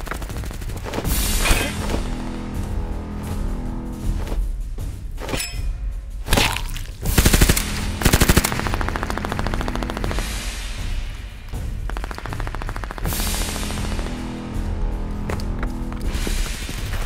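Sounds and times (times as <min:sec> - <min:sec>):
low music bed: 0:00.4 - 0:17.0
automatic gunfire bursts: 0:07.2 - 0:10.3, 0:11.8 - 0:14.1.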